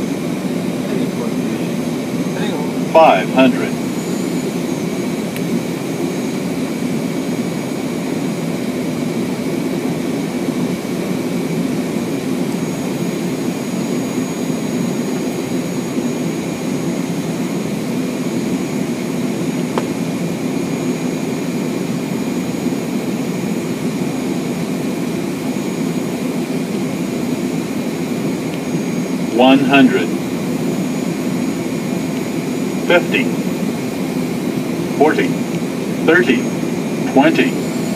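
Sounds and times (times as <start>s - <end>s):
faint high whine: 0.0s - 8.3s, 24.4s - 37.9s
jet airliner cockpit noise: 0.0s - 37.9s.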